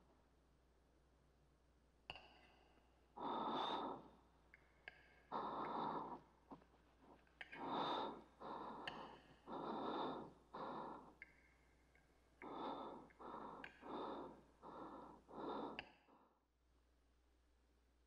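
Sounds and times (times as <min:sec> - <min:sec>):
man breathing heavily: 0:03.2 - 0:04.0, 0:05.3 - 0:06.3, 0:07.5 - 0:11.2, 0:12.4 - 0:15.8.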